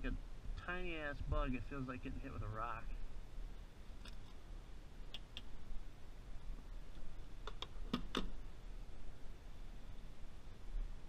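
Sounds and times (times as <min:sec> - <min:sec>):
faint low hum: 0:00.0 - 0:11.0
sharp clicks and knocks: 0:07.4 - 0:08.4.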